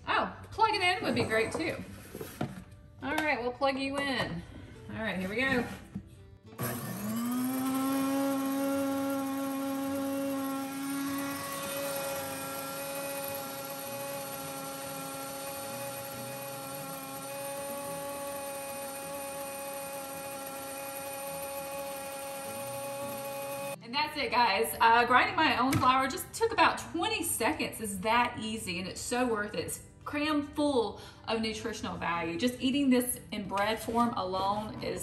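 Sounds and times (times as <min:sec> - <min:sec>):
grain mill motor whine: 0:06.6 - 0:23.8.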